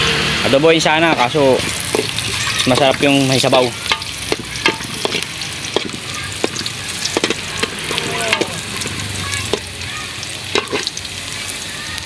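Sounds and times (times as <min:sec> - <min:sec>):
fish sizzling in a metal pot: 0:00.0 - 0:12.0
metal ladle clinking against pot: 0:01.1 - 0:06.6.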